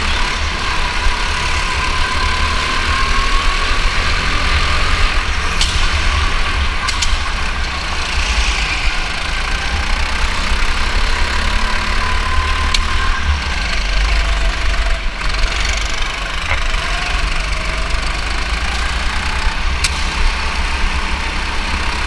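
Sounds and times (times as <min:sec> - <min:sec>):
go-kart motor running: 0:00.0 - 0:22.0
low rumble of vibration: 0:03.8 - 0:21.0.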